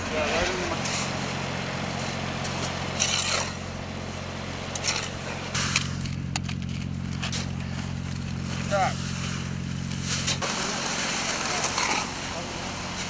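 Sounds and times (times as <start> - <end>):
engine idling: 0.0 - 13.0
shovels scraping sand: 1.9 - 3.8, 4.7 - 13.0.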